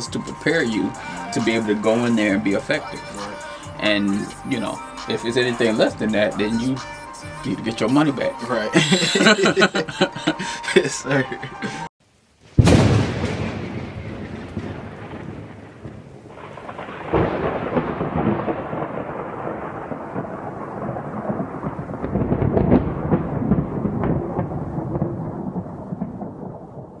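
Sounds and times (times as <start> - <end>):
steady rain: 0.0 - 6.3, 7.5 - 27.0
rolling thunder: 12.6 - 27.0.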